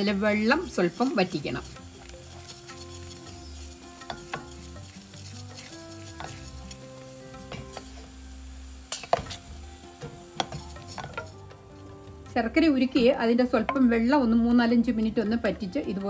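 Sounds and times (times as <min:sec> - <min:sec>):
wooden spoon scraping a pan: 0:00.1 - 0:08.1, 0:08.9 - 0:11.9.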